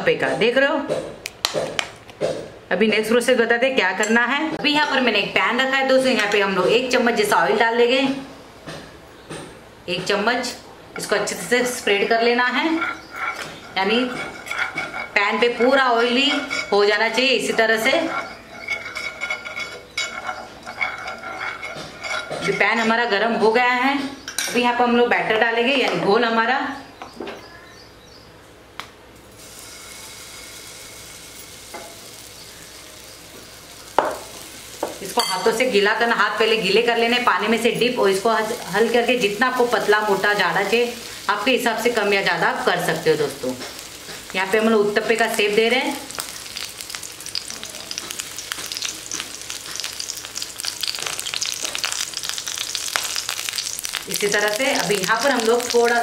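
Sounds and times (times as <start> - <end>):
batter sizzling in hot oil: 11.0 - 23.1, 29.3 - 56.0.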